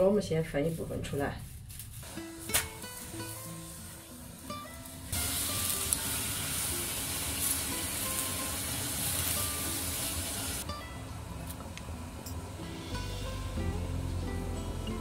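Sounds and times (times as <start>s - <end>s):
water boiling in a wok: 1.9s - 10.7s.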